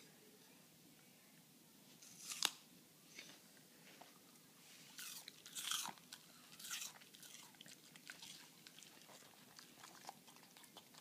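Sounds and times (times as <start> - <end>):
pet crunching apple: 2.0 - 2.6, 4.9 - 11.0.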